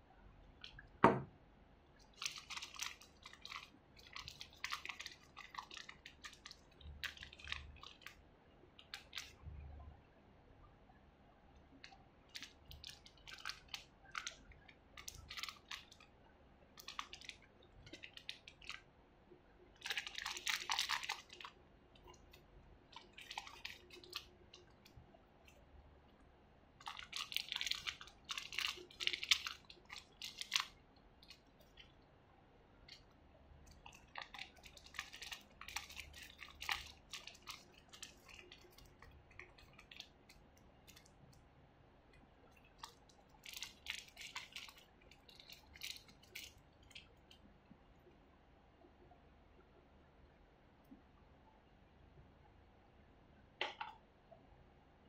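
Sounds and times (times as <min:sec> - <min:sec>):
plastic bags crinkling: 0:02.1 - 0:08.2, 0:15.0 - 0:16.0, 0:19.8 - 0:21.5, 0:26.8 - 0:30.7, 0:33.7 - 0:40.2, 0:42.8 - 0:46.6.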